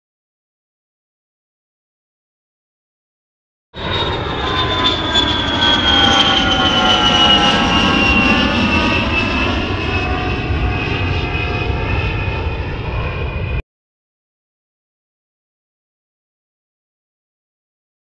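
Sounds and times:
high multi-tone whine: 3.8s - 13.6s.

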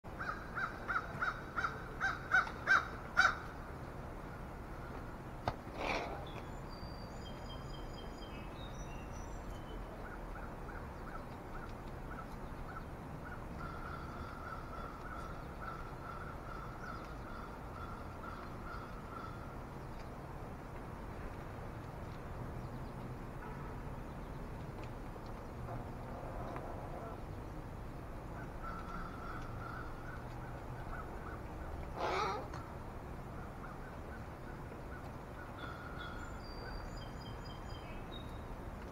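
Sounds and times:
crows cawing: 0.2s - 3.5s, 13.3s - 19.5s, 28.6s - 30.3s, 30.9s - 32.6s, 35.6s - 36.2s
faint repeated bird calls: 5.8s - 20.2s, 28.3s - 38.5s
small birds chirping: 6.0s - 20.4s, 33.4s - 38.6s.

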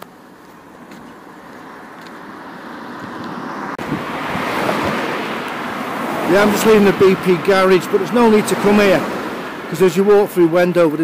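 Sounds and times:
traffic noise: 0.0s - 11.0s
vehicle passing: 0.6s - 11.0s
wind rumbling on microphone: 2.0s - 9.7s.

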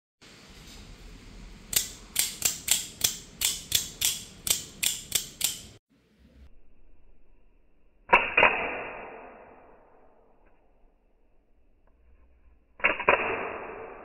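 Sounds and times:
knife blade sharp metallic clicks: 1.7s - 5.8s.

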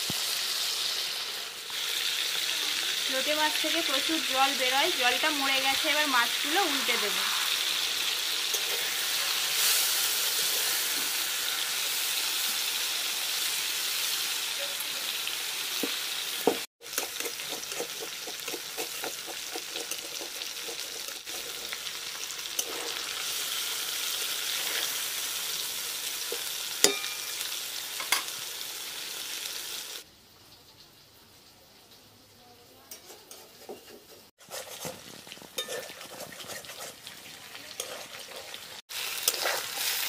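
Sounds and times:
fish frying in oil: 0.0s - 40.0s
metal spatula scraping wok: 5.2s - 12.2s, 16.9s - 28.3s, 32.9s - 40.0s.

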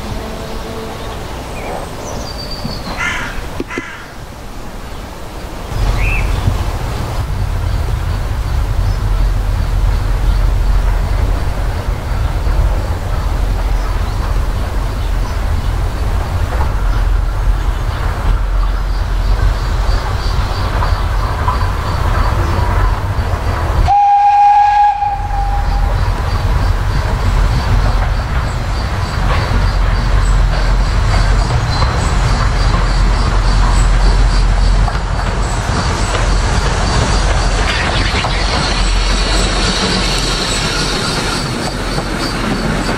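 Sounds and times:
steam locomotive rumble: 0.0s - 42.9s
steam train whistle: 23.8s - 26.1s.

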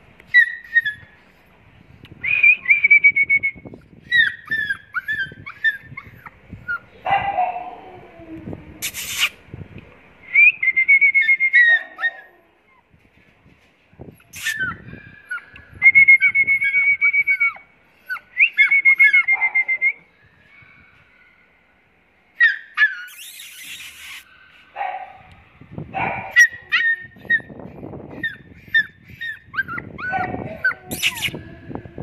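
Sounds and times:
puppy whimpering and yelping: 0.3s - 1.2s, 4.1s - 8.1s, 11.5s - 12.9s, 14.2s - 19.6s, 22.4s - 24.3s, 26.3s - 31.6s.

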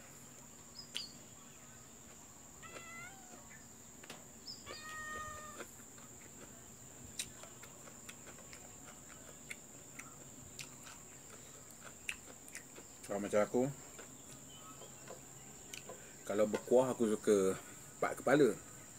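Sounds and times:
cat meowing: 2.6s - 3.5s, 4.6s - 5.7s.

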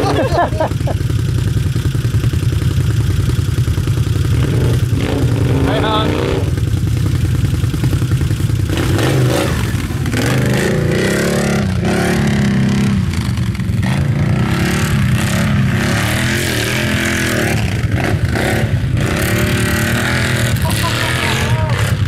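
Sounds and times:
quad engine revving: 0.0s - 22.0s.

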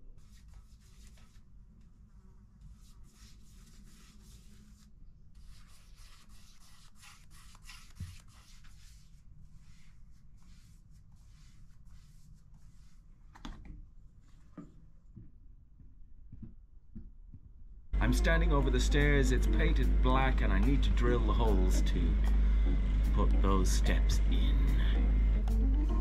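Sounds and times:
paintbrush swishing on wood: 5.5s - 13.2s
low steady hum: 14.2s - 26.0s.

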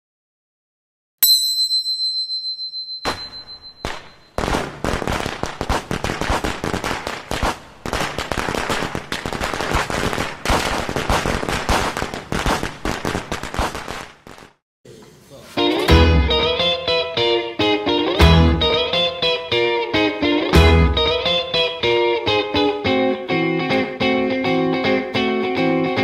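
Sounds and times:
high bell-like ding: 1.2s - 4.4s
firecrackers popping: 3.8s - 14.6s.

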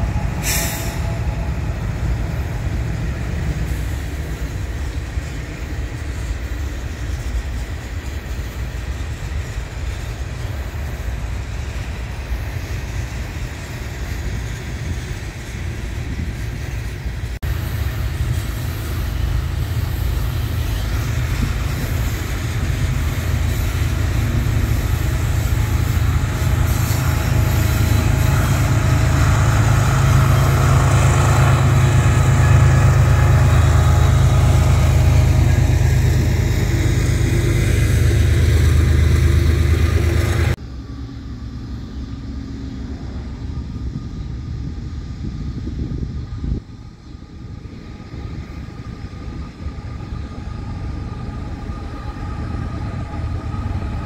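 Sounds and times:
train wheels clattering on rails: 0.0s - 40.6s
diesel locomotive engine rumble: 0.0s - 54.0s.

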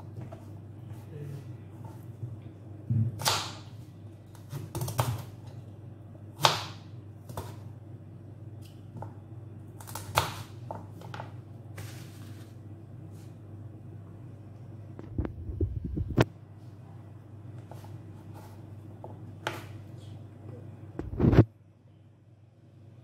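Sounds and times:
knife chopping on plastic board: 2.9s - 3.7s, 6.4s - 7.6s.

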